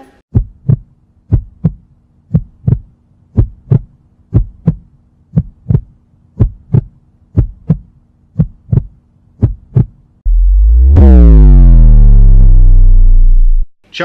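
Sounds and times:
heartbeat double thump: 0.3 - 10.0.

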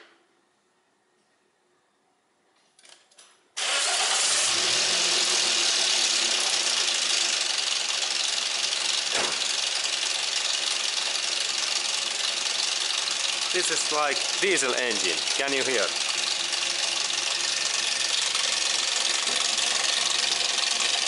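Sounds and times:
engine starting and clattering: 3.6 - 7.4.

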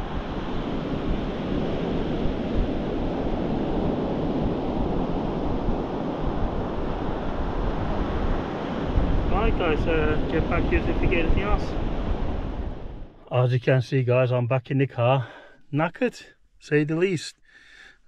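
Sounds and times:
surf breaking on shore: 0.0 - 13.0
wind rumbling on microphone: 0.0 - 13.2.

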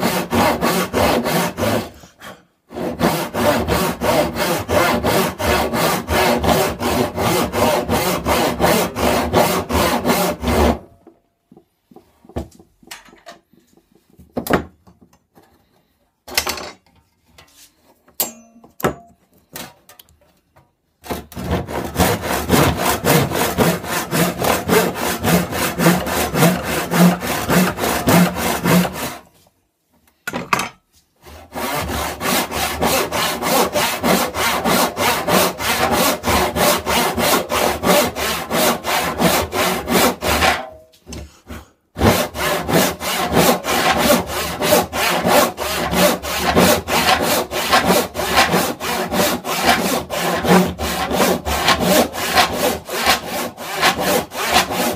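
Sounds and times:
handsaw cutting wood: 0.0 - 10.9, 21.0 - 29.3, 31.2 - 40.7, 41.3 - 54.9.

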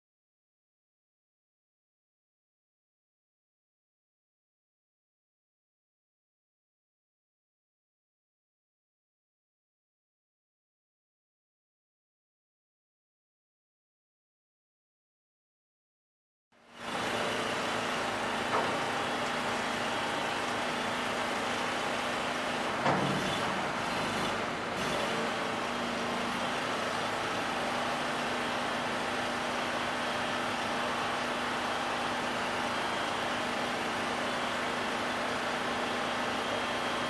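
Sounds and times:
truck engine running: 16.8 - 37.0
loud clunk: 18.4 - 19.5, 21.8 - 25.2.

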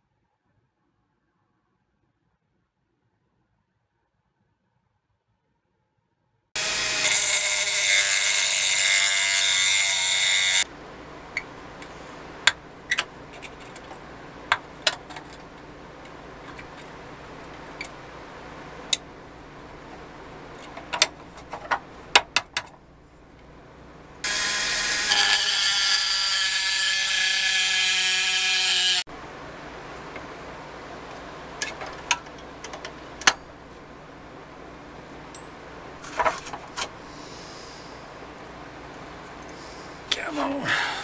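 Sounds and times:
rotary tool grinding metal: 6.6 - 10.6, 24.2 - 29.1.

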